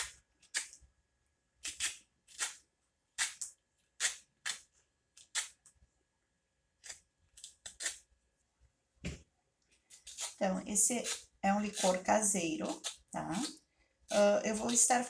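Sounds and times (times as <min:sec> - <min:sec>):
peeler scraping lemon rind: 0:09.9 - 0:15.0.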